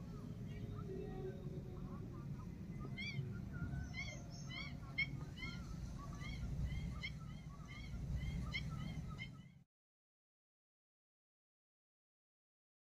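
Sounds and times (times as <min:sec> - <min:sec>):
birds chirping: 0:00.0 - 0:09.6
low background rumble: 0:00.0 - 0:09.6.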